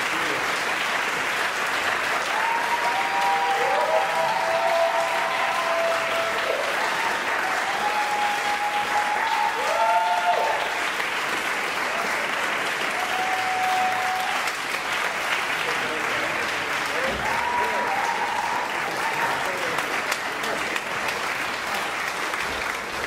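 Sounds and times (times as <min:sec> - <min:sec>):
audience applauding: 0:00.0 - 0:23.0
cheering shouts: 0:02.2 - 0:10.8, 0:12.8 - 0:14.7, 0:16.9 - 0:19.8.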